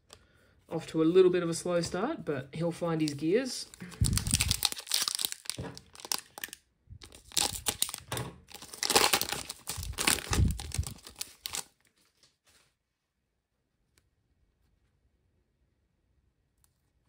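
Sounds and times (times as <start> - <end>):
foil wrapper tearing and crinkling: 3.1 - 11.8.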